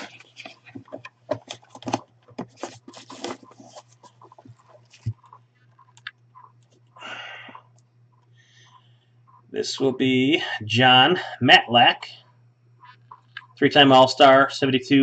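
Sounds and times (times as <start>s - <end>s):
cardboard flaps rustling: 0.0s - 5.2s.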